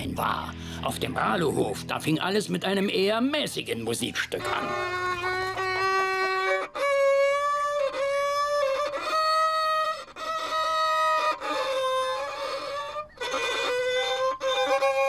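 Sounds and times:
squawky violin notes: 4.0s - 15.0s.

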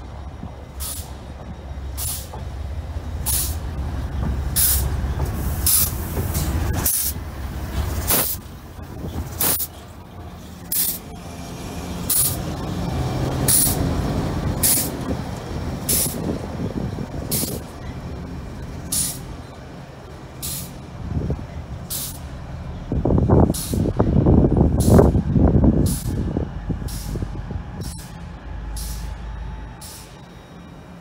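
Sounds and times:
diesel locomotive engine drone: 0.0s - 31.0s
short sharp hisses: 8.1s - 8.4s.

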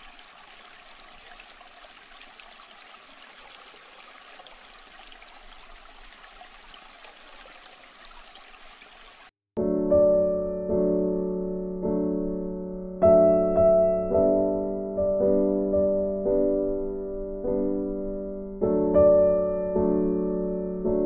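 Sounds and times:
aquarium water trickling and bubbling: 0.0s - 9.3s
piano music: 9.6s - 21.0s.

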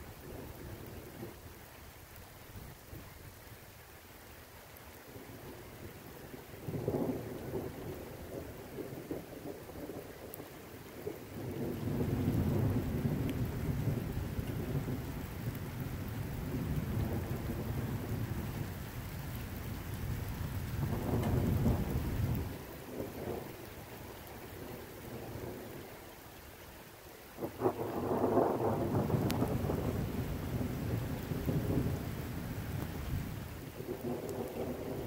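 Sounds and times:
steady rain: 0.0s - 35.0s
thunder rumbling: 11.0s - 23.6s, 27.4s - 35.0s.

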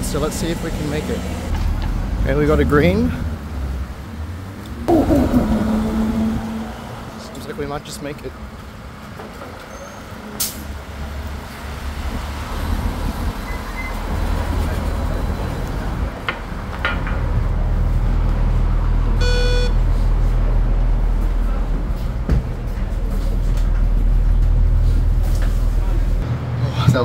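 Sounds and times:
bus engine rumble: 0.0s - 26.6s
short electronic beep: 19.2s - 19.8s.

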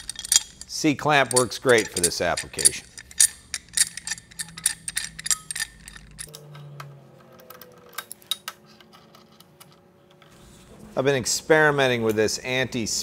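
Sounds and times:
metal clamp clicking and clinking: 0.0s - 6.4s.

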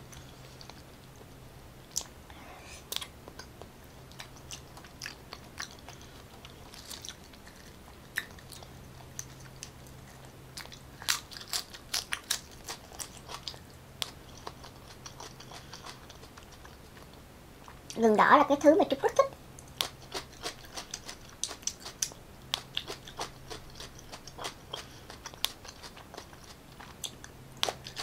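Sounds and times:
wet chewing: 2.9s - 18.0s, 19.6s - 28.0s.

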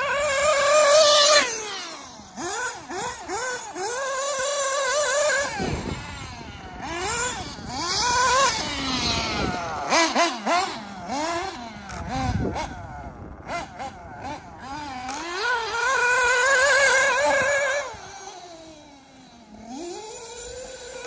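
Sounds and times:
rc car engine whining: 0.0s - 21.0s.

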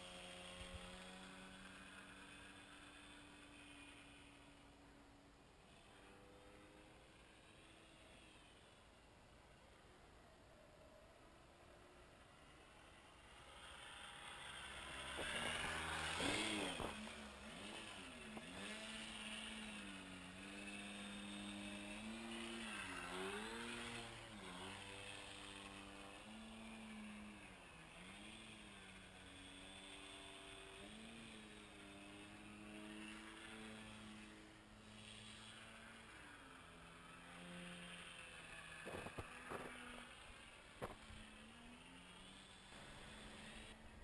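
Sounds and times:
airplane engine: 11.8s - 44.0s.

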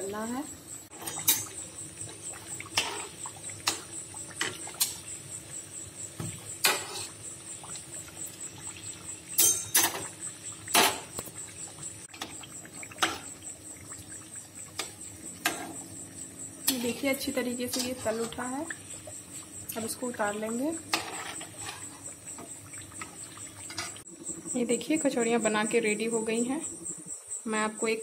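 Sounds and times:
oil sizzling while deep-frying: 0.0s - 24.5s.

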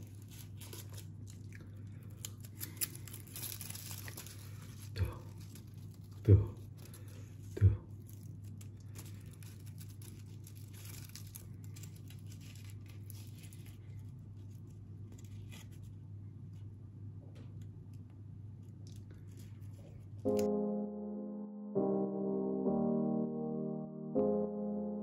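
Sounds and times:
leaf wrapper crinkling and tearing: 0.0s - 16.6s, 18.6s - 20.5s.

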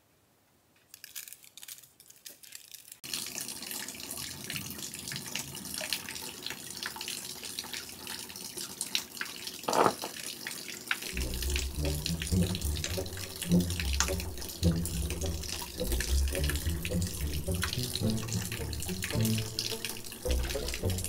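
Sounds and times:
water splashing into stone basin: 9.7s - 10.4s, 11.0s - 21.0s.

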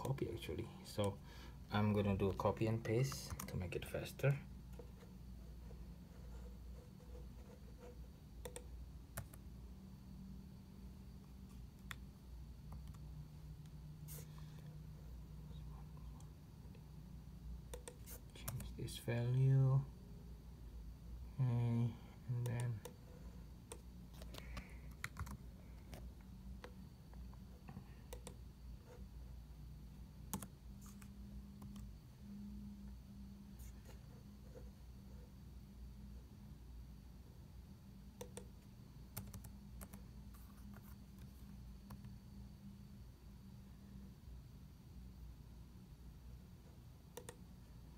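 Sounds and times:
faint low hum: 0.0s - 47.9s
laptop keys clicking: 8.4s - 9.4s, 17.7s - 18.7s, 23.7s - 26.0s, 39.2s - 40.0s.

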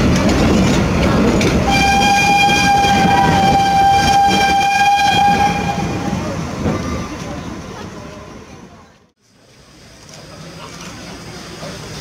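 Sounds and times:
train coaches rolling on rails: 0.0s - 12.0s
steam locomotive whistle: 1.7s - 6.2s.

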